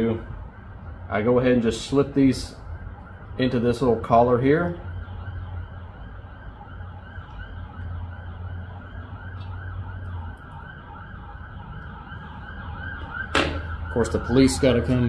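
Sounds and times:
siren yelping: 0.0 - 15.0.

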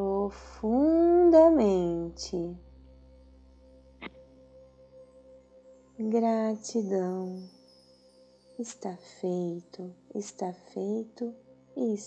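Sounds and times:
soft ambient drone music: 0.0 - 12.0.

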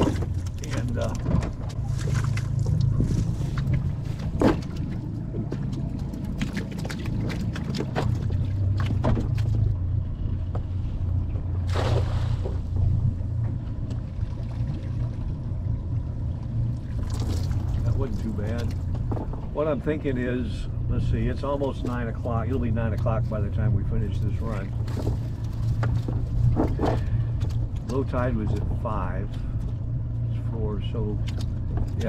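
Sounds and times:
low engine hum: 0.0 - 32.0
net splashing into water: 11.6 - 12.6.

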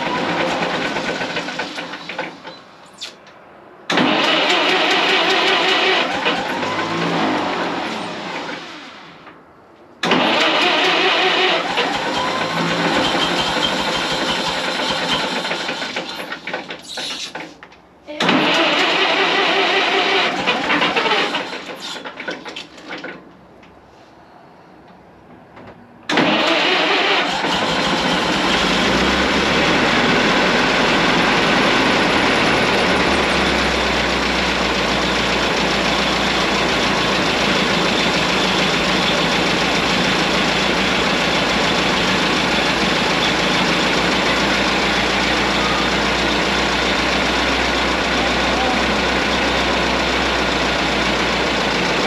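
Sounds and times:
engine starting attempts: 0.0 - 3.2, 3.9 - 9.2, 10.0 - 23.3, 26.1 - 45.6
engine running steadily: 27.5 - 52.0.

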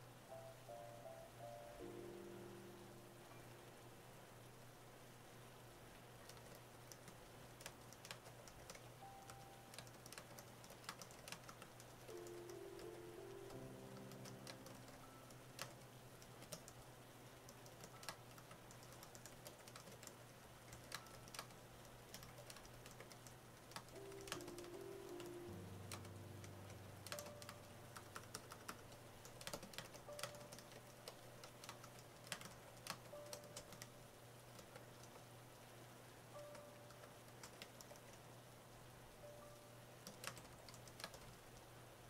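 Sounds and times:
faint piano music: 0.0 - 6.5, 7.6 - 42.0
keyboard typing clicks: 6.2 - 16.8, 17.5 - 35.3, 36.4 - 38.2, 39.3 - 41.4.

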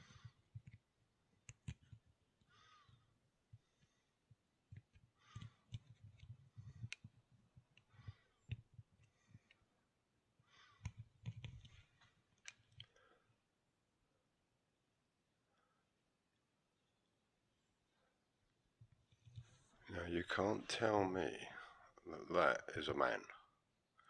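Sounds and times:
faint clicks and soft knocks: 0.0 - 13.2, 18.5 - 19.9.

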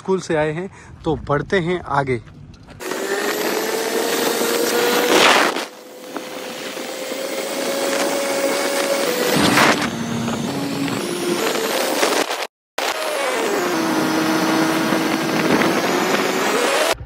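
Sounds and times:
motorcycle engine running: 13.6 - 17.0
wind rushing over microphone: 13.9 - 17.0.

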